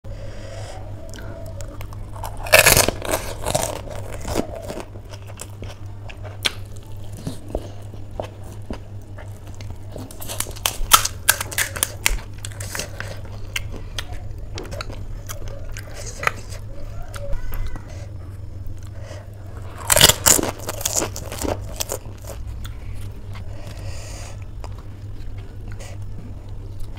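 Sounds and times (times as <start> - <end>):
steady low hum: 0.0 - 26.9
chewing: 1.0 - 26.9
crisp shells crunching: 1.6 - 16.7, 19.6 - 23.8.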